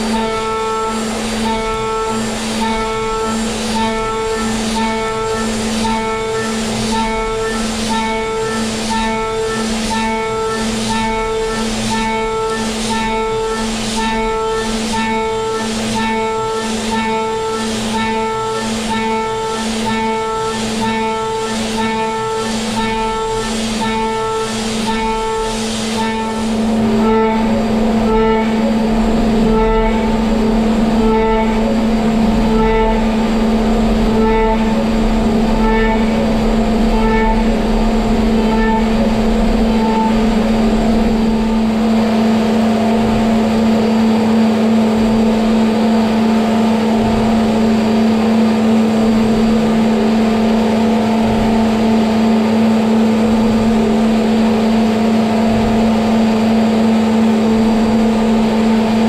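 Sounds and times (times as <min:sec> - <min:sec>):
milling machine cutting metal: 0:00.0 - 0:59.0.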